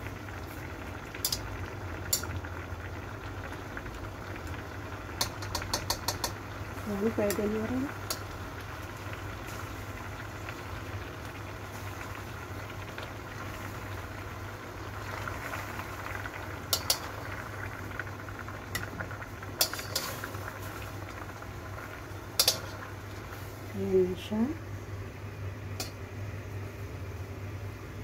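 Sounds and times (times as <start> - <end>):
water boiling in a wok: 0.0 - 28.0
tongs clicking against wok: 1.2 - 1.5, 2.1 - 2.3, 5.2 - 6.4, 7.2 - 8.3, 16.7 - 17.1, 19.6 - 20.2, 22.4 - 22.8, 25.8 - 26.0.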